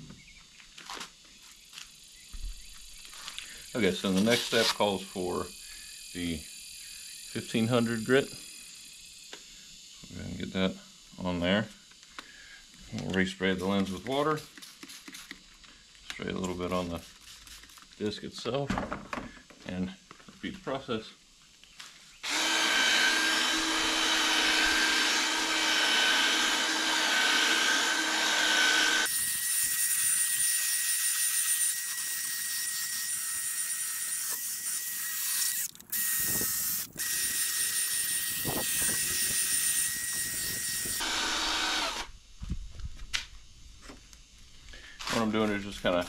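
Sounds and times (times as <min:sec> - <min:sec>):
cordless drill sanding: 0:02.7 - 0:09.7, 0:11.9 - 0:18.0, 0:22.2 - 0:42.2.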